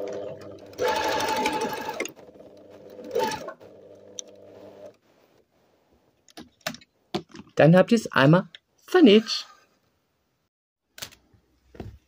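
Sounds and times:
sewing machine running: 0:00.0 - 0:04.9.

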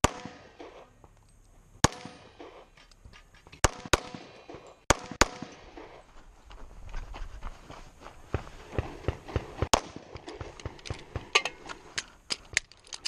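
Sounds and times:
pistol shots: 0:00.0 - 0:00.9, 0:01.8 - 0:02.7, 0:03.6 - 0:06.0, 0:09.0 - 0:11.3.

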